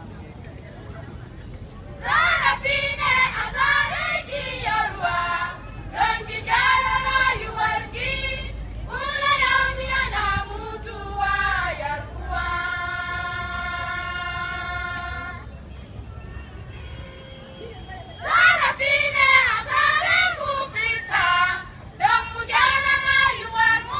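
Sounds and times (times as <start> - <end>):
women's choir singing: 2.0 - 15.6, 18.2 - 23.9.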